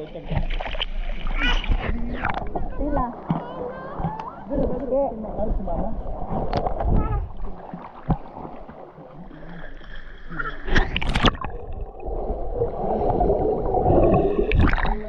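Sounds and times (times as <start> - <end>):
muffled water churning: 0.0 - 15.0
sharp water splashes: 5.4 - 15.0.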